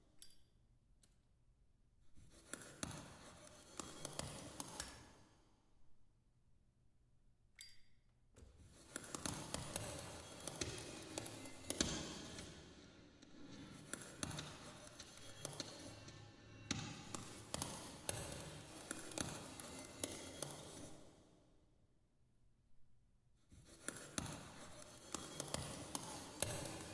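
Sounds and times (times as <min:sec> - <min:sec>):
percussion objects tapping and clicking: 0:07.6 - 0:20.9, 0:23.8 - 0:26.9.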